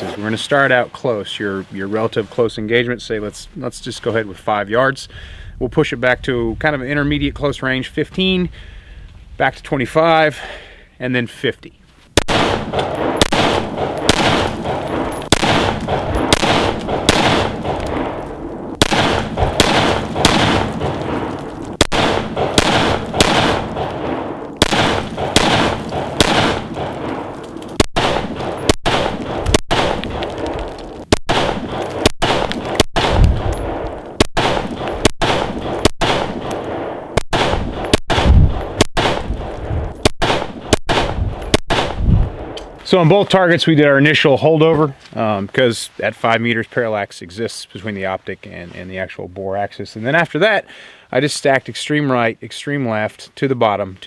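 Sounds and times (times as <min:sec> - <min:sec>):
rifle shots: 0:12.2 - 0:42.6.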